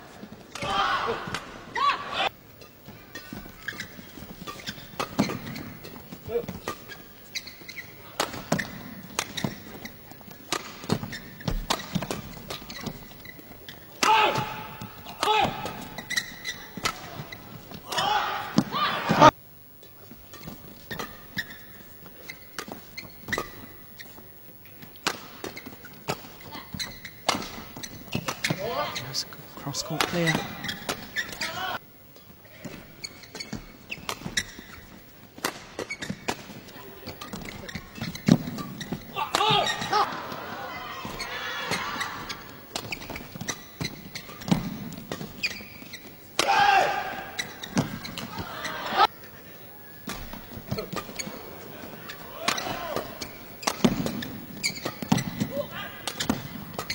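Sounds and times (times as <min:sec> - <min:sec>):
shoes squeaking on court: 0:02.2 - 0:56.9
crowd noise: 0:36.5 - 0:45.0, 0:46.8 - 0:56.9.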